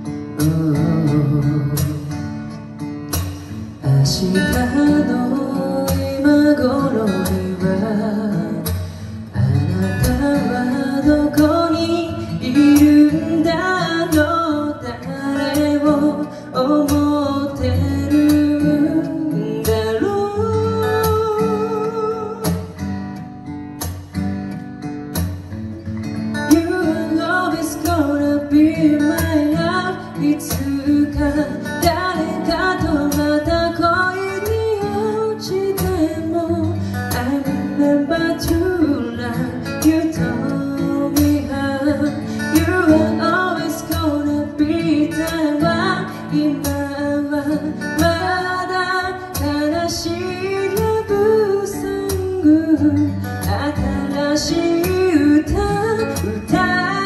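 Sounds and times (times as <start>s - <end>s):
acoustic guitar: 0.0s - 57.0s
man singing a slow ballad: 0.4s - 2.4s, 3.6s - 22.7s.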